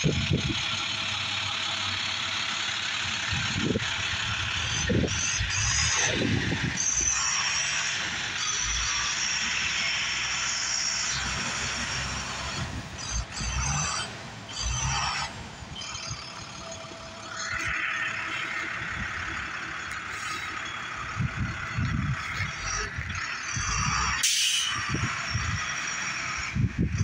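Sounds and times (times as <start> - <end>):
diesel truck engine idling: 0.0 - 27.0.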